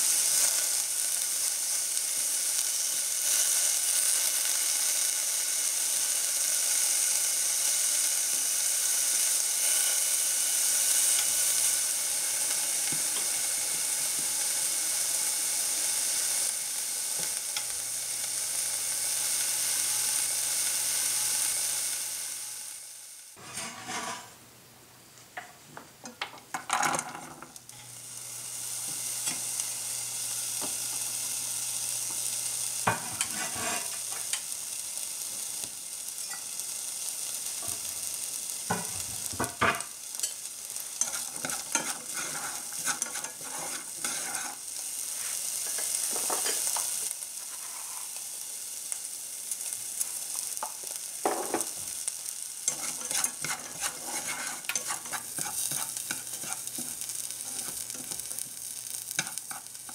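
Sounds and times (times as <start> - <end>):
onion sizzling in pan: 0.0 - 24.4, 25.8 - 59.9
chopsticks scraping and tapping pan: 32.9 - 34.5, 41.0 - 44.6, 52.7 - 58.5, 59.1 - 59.9.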